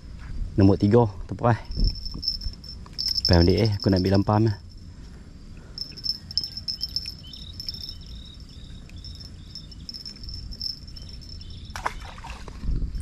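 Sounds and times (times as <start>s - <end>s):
insects droning high-pitched: 0.0s - 13.0s
rustle with clicks: 1.7s - 4.3s
short chirps: 5.8s - 11.6s.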